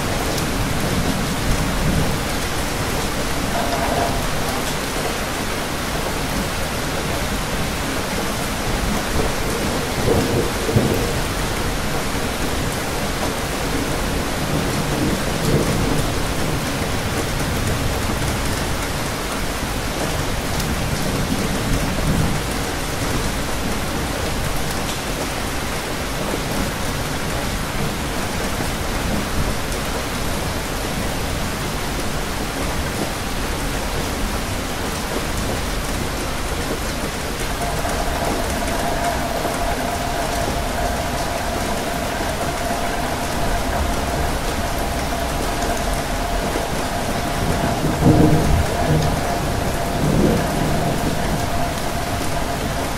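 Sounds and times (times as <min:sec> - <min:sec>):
low thunder rumbles: 0:00.0 - 0:18.8, 0:37.0 - 0:52.9
steady rain falling: 0:00.0 - 0:52.9.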